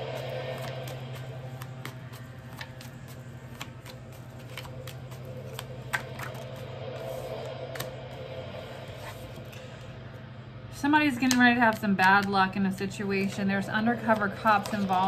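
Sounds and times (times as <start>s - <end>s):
steady low hum: 0.0s - 15.0s
cards shuffling clicks: 0.1s - 7.9s.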